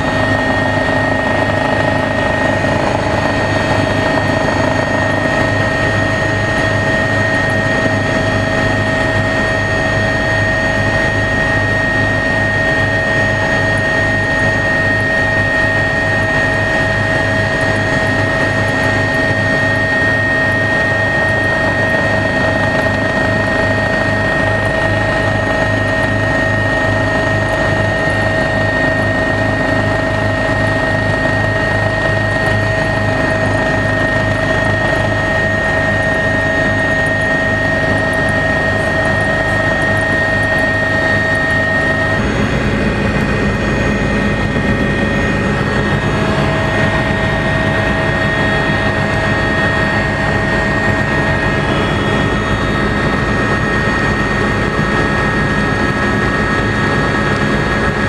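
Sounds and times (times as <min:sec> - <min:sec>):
helicopter turbine and rotor drone: 0:00.0 - 0:58.0.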